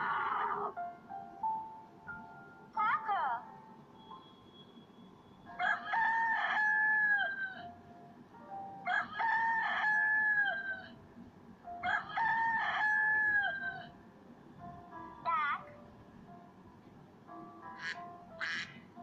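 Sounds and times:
rooster crowing: 5.6 - 7.7, 8.9 - 11.0, 11.8 - 13.9.

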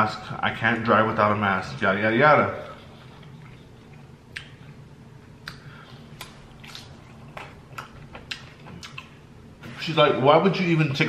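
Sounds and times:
chewing with crunches: 2.6 - 4.8, 5.4 - 9.2.

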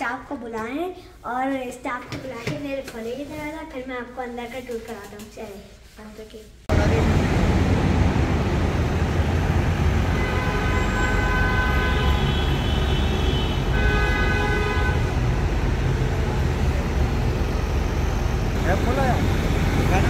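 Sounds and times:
road traffic rumbling: 6.7 - 20.0
vehicle horn: 10.0 - 15.2.

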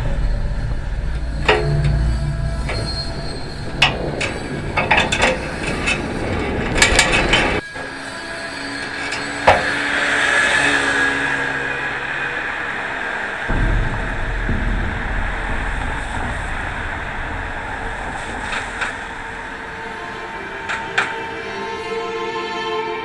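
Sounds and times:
low rumble: 0.0 - 7.6, 11.4 - 21.4
bicycle rattling: 0.0 - 7.7, 11.6 - 21.4
rusted parts squeaking: 0.1 - 10.6, 12.0 - 21.6
faint hum: 11.3 - 21.7.

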